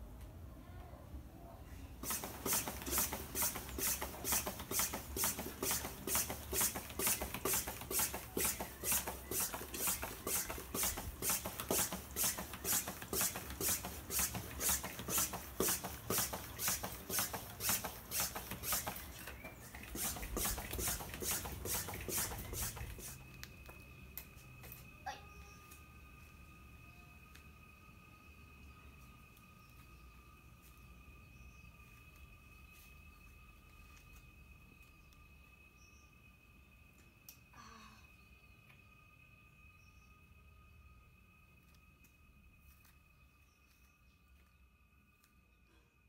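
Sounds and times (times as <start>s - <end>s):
bike pump hissing: 2.0s - 23.6s.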